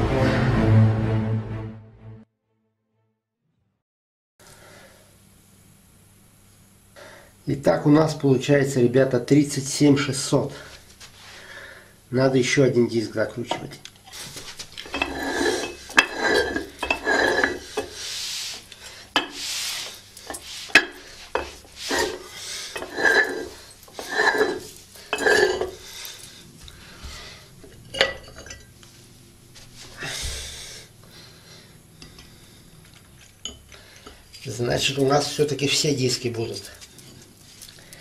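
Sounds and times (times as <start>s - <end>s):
iron parts knocking and clinking: 14.8s - 17.9s
metal-on-metal scraping: 14.8s - 26.3s.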